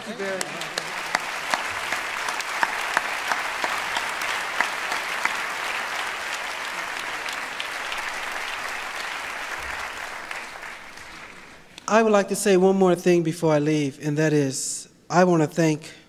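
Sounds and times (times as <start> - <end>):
audience applause: 0.0 - 11.8.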